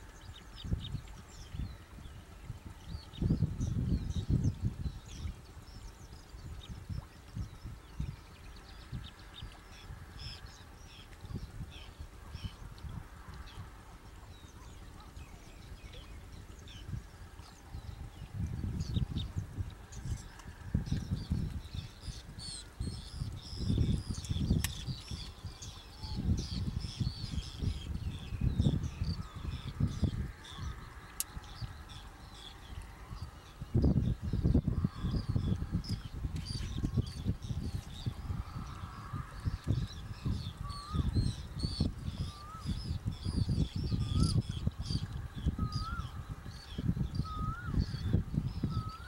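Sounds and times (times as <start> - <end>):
birds chirping: 0.0 - 49.0
wind rumble on microphone: 0.0 - 49.0.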